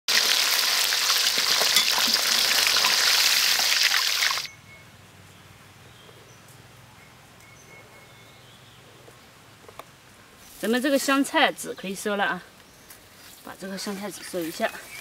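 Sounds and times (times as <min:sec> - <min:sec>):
meat deep-frying in hot oil: 0:00.1 - 0:04.5.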